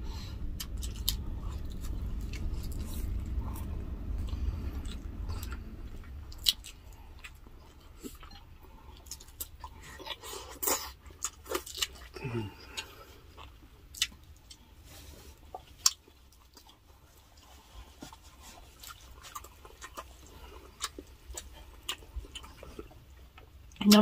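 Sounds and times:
low rumble: 0.0s - 16.0s
chewing and biting food: 0.4s - 24.0s.

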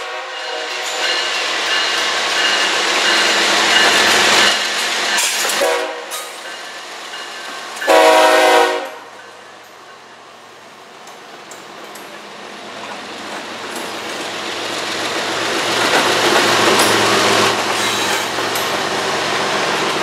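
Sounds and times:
locomotive air horn: 0.0s - 1.0s, 5.6s - 6.3s, 7.9s - 9.1s
locomotive engine and wheel noise: 9.5s - 20.0s.

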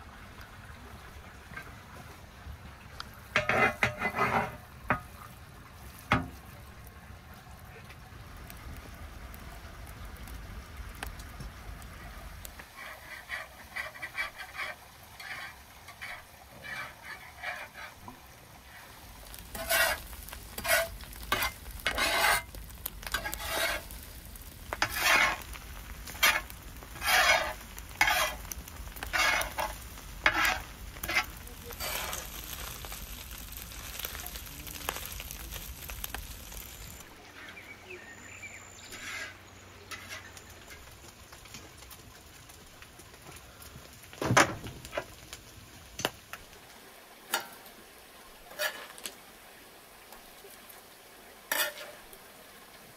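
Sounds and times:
meat sizzling in a pan: 3.1s - 6.9s, 8.2s - 37.2s, 38.3s - 52.9s
spatula scraping a pan: 3.3s - 5.2s, 12.6s - 34.4s, 38.8s - 40.9s, 48.5s - 49.0s, 51.5s - 52.1s.

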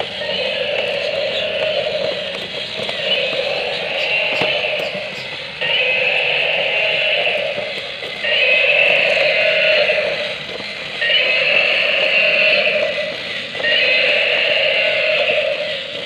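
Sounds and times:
toy gear motor whirring: 0.0s - 16.0s.

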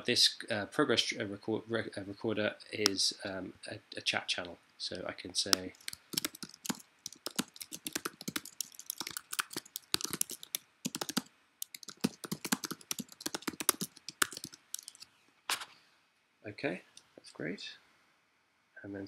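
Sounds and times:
typing on a keyboard: 5.6s - 15.0s.

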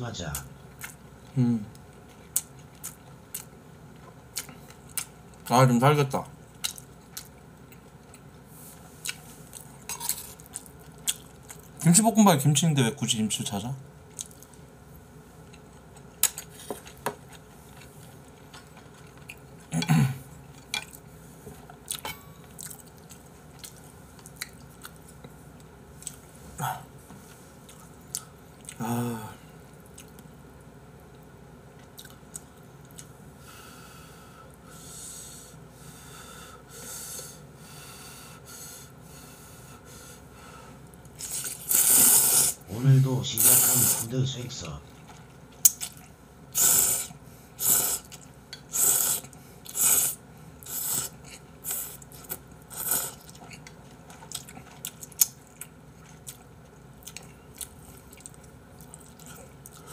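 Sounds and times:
person chewing: 0.7s - 1.0s, 1.7s - 5.5s, 6.5s - 8.3s, 9.0s - 11.8s, 14.1s - 14.6s, 15.5s - 19.9s, 21.6s - 26.3s, 27.6s - 28.9s, 29.6s - 30.3s, 31.8s - 33.1s, 40.9s - 42.6s, 44.9s - 59.9s
noodles being slurped: 41.2s - 42.6s, 43.4s - 44.1s.

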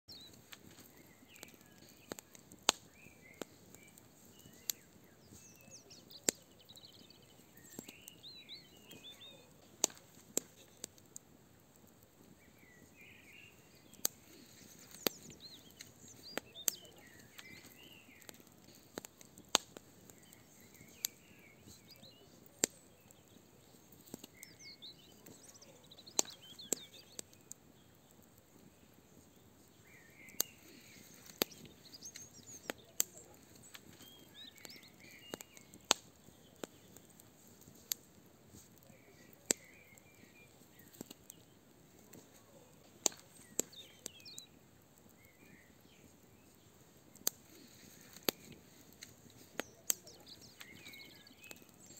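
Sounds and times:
small birds chirping: 0.1s - 51.9s
wood fire crackling: 0.1s - 51.9s.

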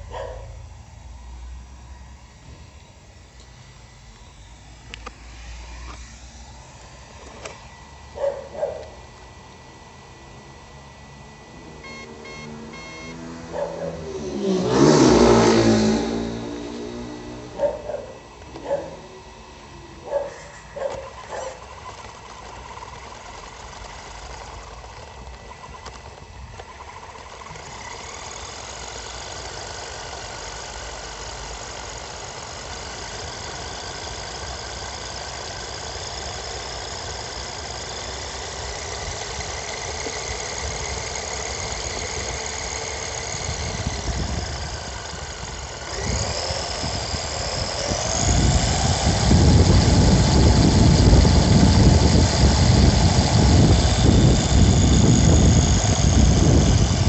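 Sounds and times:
rc car motor whine: 0.0s - 57.0s
sharp clicks: 4.1s - 5.2s.

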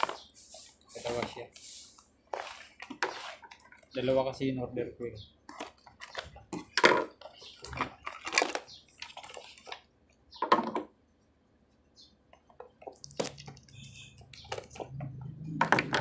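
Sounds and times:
cardboard boxes scraping on table: 0.0s - 3.6s.

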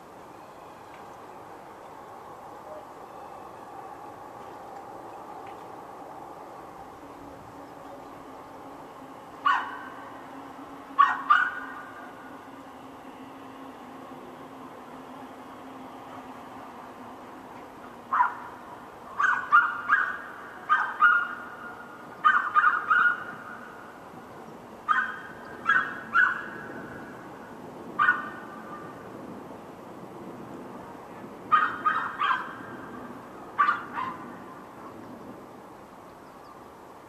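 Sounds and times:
dog barking: 9.4s - 9.9s, 11.0s - 11.6s, 18.1s - 18.5s, 19.2s - 21.4s, 22.2s - 23.3s, 24.9s - 26.5s, 28.0s - 28.4s, 31.5s - 32.6s, 33.6s - 34.2s.

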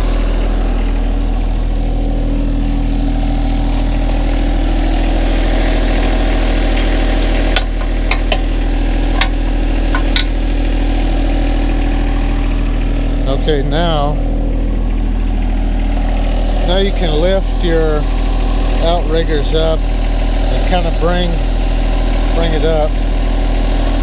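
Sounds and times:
tractor diesel engine idling: 0.0s - 24.0s
sharp metallic clicks: 6.7s - 10.4s.

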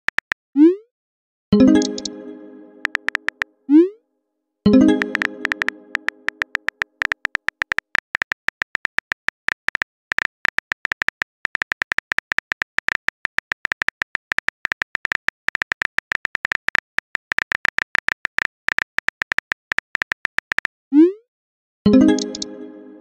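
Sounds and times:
phone keyboard clicks: 0.0s - 0.4s, 2.8s - 3.5s, 4.9s - 20.7s.

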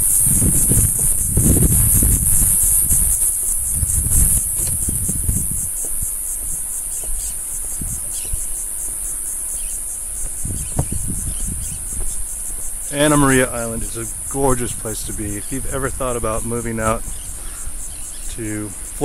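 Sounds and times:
insects trilling: 0.0s - 19.0s
wind buffeting microphone: 0.0s - 19.0s
faint bird chirps: 6.8s - 8.7s.

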